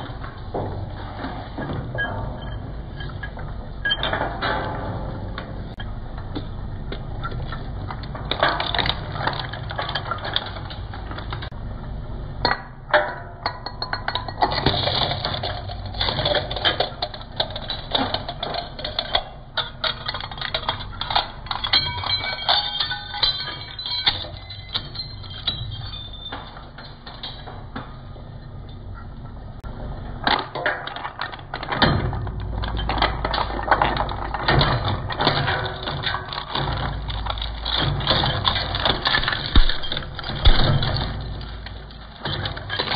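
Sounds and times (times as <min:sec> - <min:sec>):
plastic cracking in shredder: 0:30.3 - 0:42.9.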